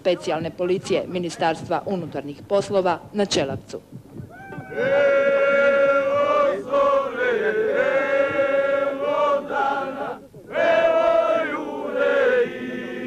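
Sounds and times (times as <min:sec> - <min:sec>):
men singing together: 0:04.7 - 0:13.0.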